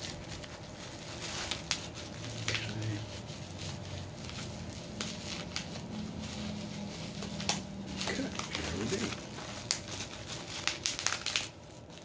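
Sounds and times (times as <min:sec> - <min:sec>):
bubble wrap rustling and crackling: 0:00.0 - 0:12.0.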